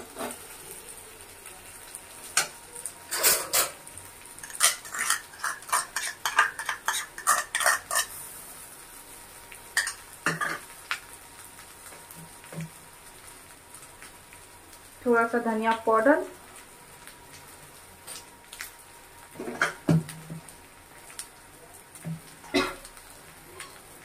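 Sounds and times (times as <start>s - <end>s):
utensils clinking and scraping: 3.1s - 3.8s, 4.4s - 8.2s.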